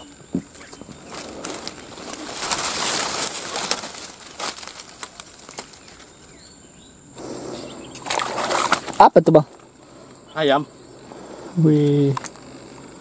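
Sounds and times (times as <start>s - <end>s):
undergrowth rustling and swishing: 0.3s - 6.5s, 7.2s - 10.1s.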